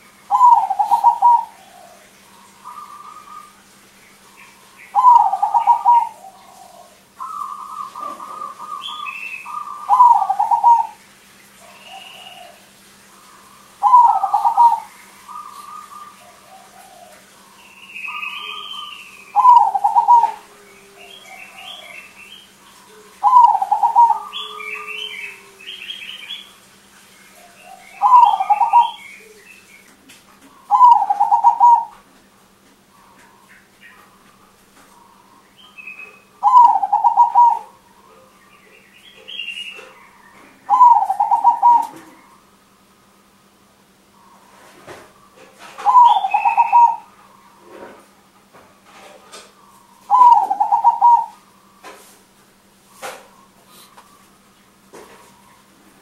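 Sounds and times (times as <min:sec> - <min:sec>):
dove cooing: 0:00.0 - 0:11.0, 0:11.6 - 0:26.6, 0:27.3 - 0:29.6, 0:30.4 - 0:32.1, 0:32.9 - 0:42.5, 0:44.1 - 0:48.1, 0:49.0 - 0:52.1
faint high bird calls: 0:00.0 - 0:11.0, 0:11.6 - 0:32.1, 0:32.9 - 0:42.6, 0:44.1 - 0:47.8, 0:49.4 - 0:52.0.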